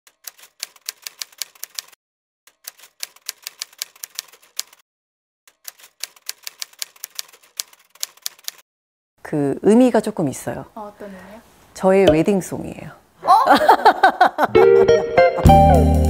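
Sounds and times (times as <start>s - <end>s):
typewriter keys clacking: 0.1s - 4.8s, 5.5s - 8.6s.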